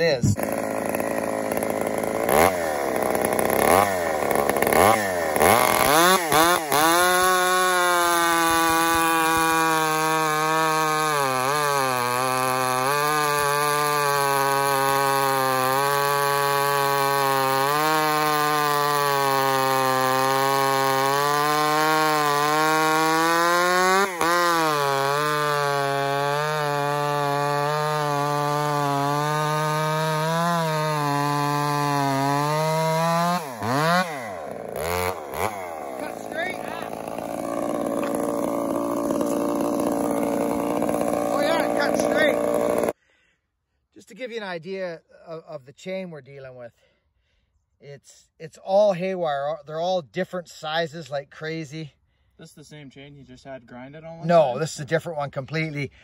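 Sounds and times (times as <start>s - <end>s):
chainsaw cutting a log: 0.0s - 43.0s.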